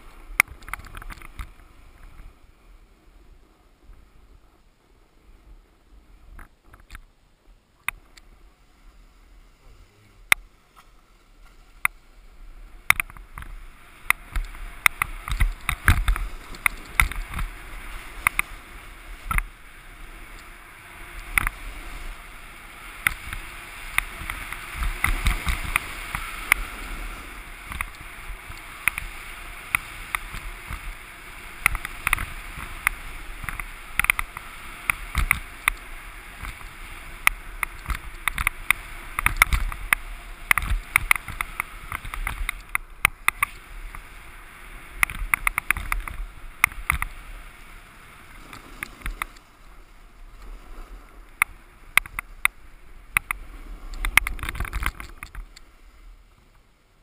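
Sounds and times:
snowboard scraping over snow: 0:08.4 - 0:56.6
snowboard chattering clicks: 0:12.8 - 0:19.6, 0:23.0 - 0:27.0, 0:27.6 - 0:44.1, 0:44.9 - 0:47.2, 0:51.3 - 0:55.7.

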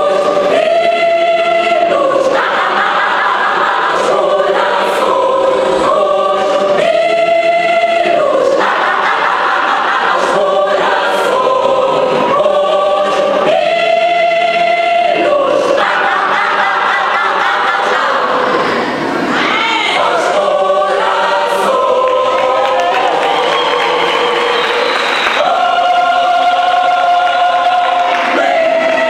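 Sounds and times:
mixed choir singing a hymn: 0:00.0 - 0:29.0.

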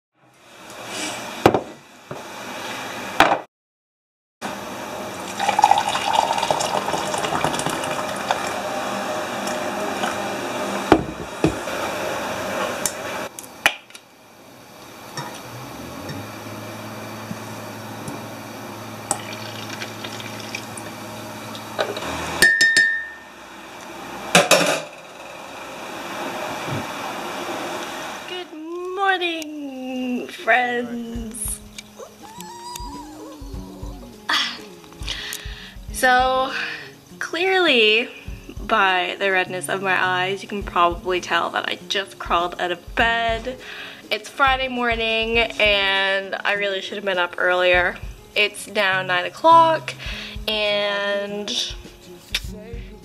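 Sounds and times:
electric kettle humming: 0:00.4 - 0:03.4, 0:04.4 - 0:52.0
water pouring: 0:05.2 - 0:08.6, 0:19.1 - 0:21.0.

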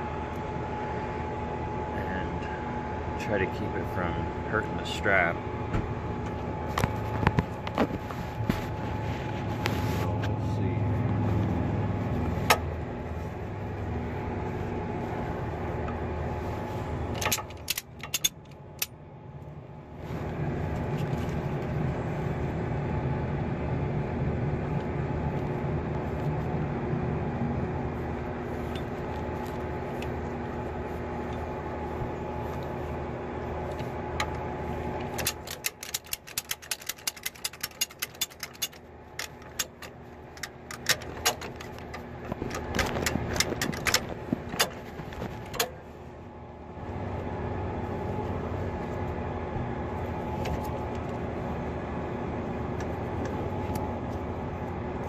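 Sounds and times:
truck engine idling: 0:00.0 - 0:55.0
light metallic clicks and rattles: 0:17.1 - 0:19.0, 0:35.0 - 0:45.8.

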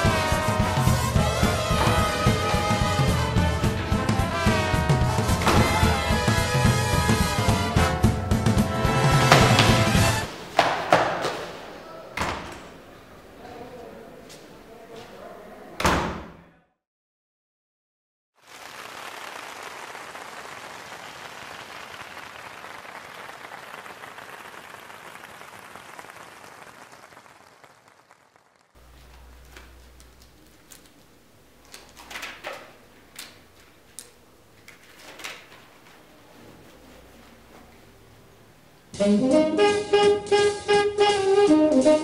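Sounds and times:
audience applause: 0:18.4 - 0:28.8.

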